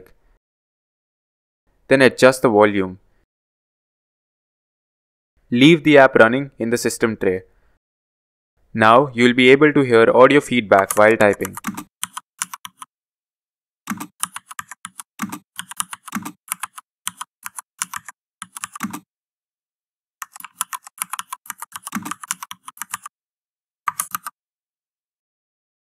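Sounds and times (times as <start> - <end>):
keyboard keystroke clicks: 23.9 - 24.4.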